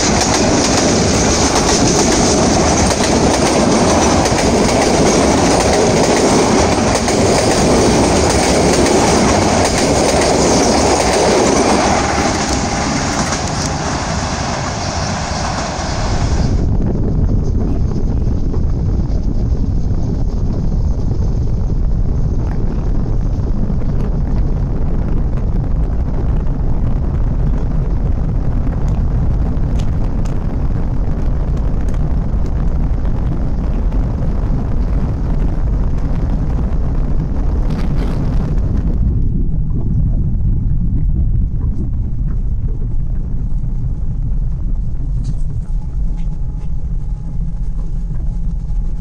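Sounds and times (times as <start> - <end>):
car road noise rumble: 0.0 - 49.0
wind buffeting microphone: 0.0 - 49.0
high hiss: 10.4 - 16.7.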